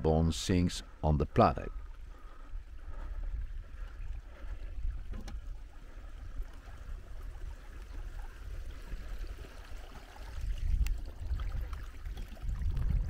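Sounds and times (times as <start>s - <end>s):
wind rumble on microphone: 2.6s - 13.0s
stream trickling over rocks: 3.5s - 13.0s.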